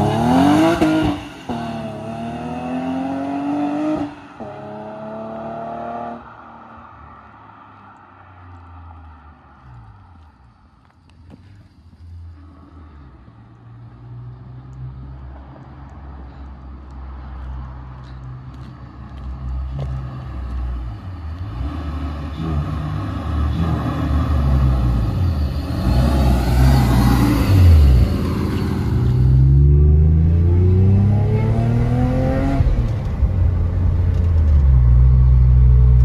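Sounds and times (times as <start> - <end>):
car engine and supercharger whine: 19.1 - 36.0.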